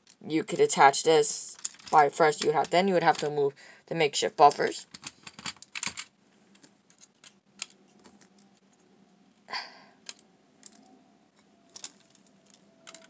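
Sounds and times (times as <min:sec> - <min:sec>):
plastic bricks clicking: 0:04.9 - 0:08.6, 0:10.0 - 0:10.9, 0:11.7 - 0:13.0.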